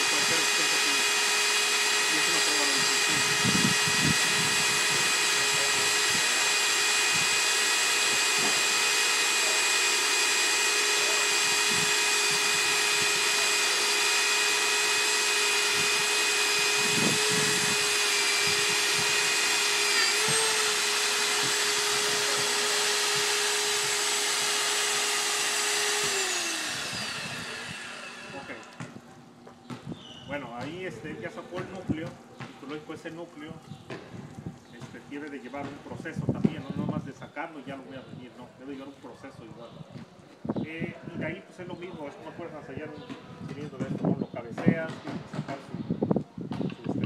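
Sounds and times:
core drill whining: 0:00.0 - 0:29.1.

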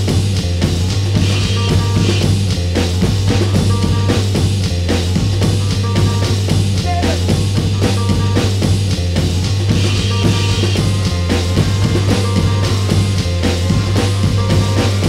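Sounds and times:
drum kit beat: 0:00.0 - 0:15.0
droning low bass note: 0:09.8 - 0:15.0.

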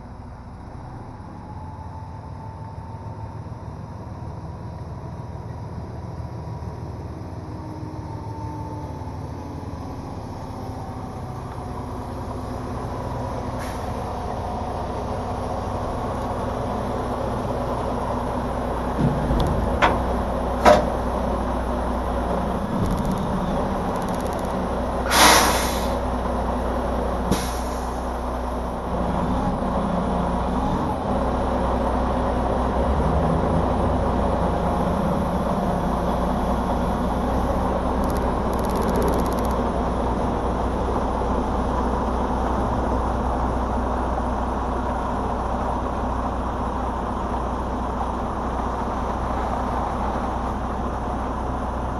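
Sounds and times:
truck diesel engine running: 0:00.0 - 0:51.9
air brake hiss: 0:13.6 - 0:14.0, 0:25.0 - 0:26.0, 0:27.3 - 0:28.1
sharp clunks: 0:19.0 - 0:21.0.

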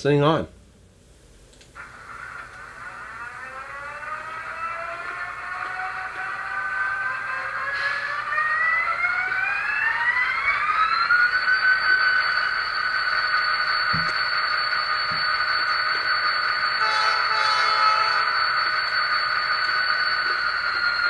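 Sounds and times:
model locomotive engine sound: 0:01.6 - 0:21.0.

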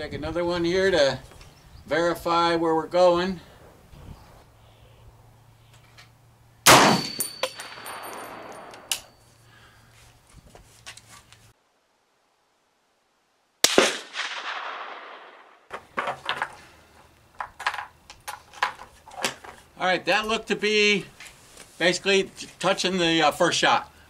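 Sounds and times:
rifle shots echoing: 0:06.7 - 0:08.9, 0:13.6 - 0:15.7
thin high ring: 0:06.9 - 0:09.5.

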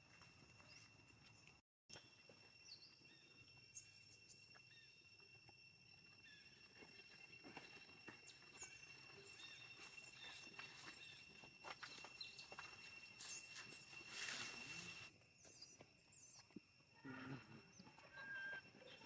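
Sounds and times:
steady high-pitched tones: 0:03.4 - 0:15.2.

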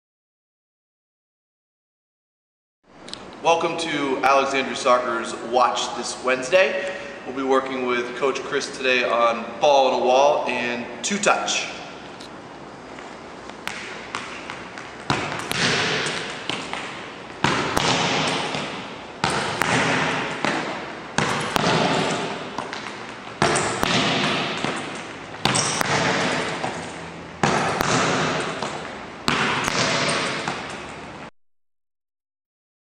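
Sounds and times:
ball striking wall echoing: 0:12.9 - 0:31.3.

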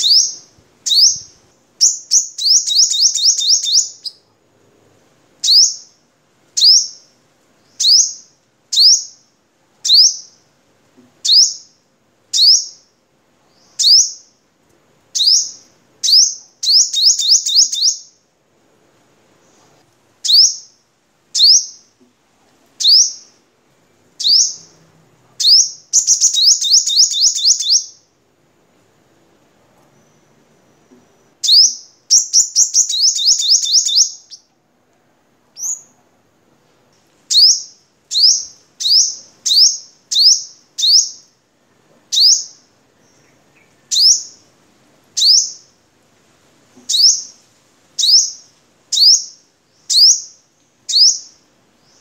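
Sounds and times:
sunbird chirping: 0:00.0 - 0:04.3, 0:05.4 - 0:06.0, 0:06.6 - 0:10.5, 0:11.2 - 0:14.4, 0:15.1 - 0:18.3, 0:20.2 - 0:22.0, 0:22.8 - 0:28.2, 0:29.9 - 0:34.5, 0:35.5 - 0:36.0, 0:37.3 - 0:41.5, 0:42.1 - 0:44.6, 0:45.2 - 0:45.8, 0:46.8 - 0:47.4, 0:48.0 - 0:52.0.

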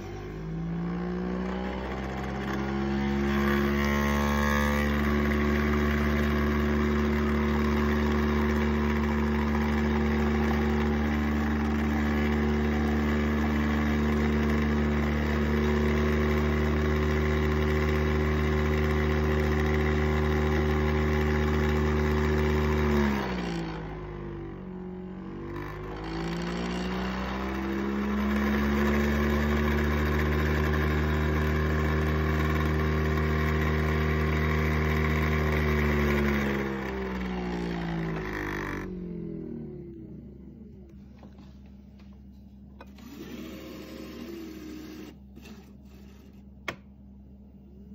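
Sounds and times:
coffee machine motor spinning: 0:01.2 - 0:22.8, 0:40.9 - 0:47.0.

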